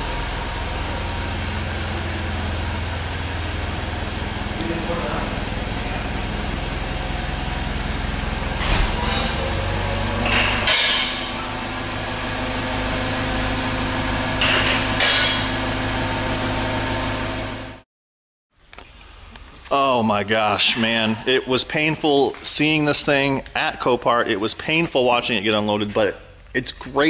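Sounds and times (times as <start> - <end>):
forklift engine running: 0.0 - 17.8
sharp metal clunks: 10.2 - 11.4.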